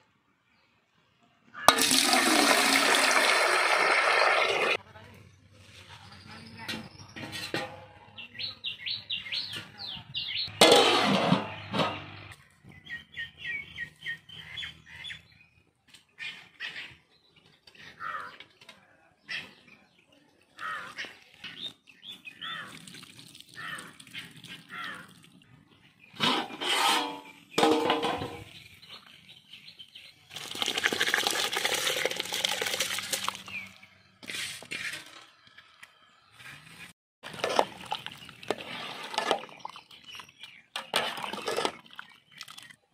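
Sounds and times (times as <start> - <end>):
rice poured into water: 1.7 - 4.8, 30.3 - 33.6
small birds chirping: 8.1 - 10.6, 11.6 - 26.2, 28.4 - 30.4, 33.4 - 34.3, 37.8 - 42.9.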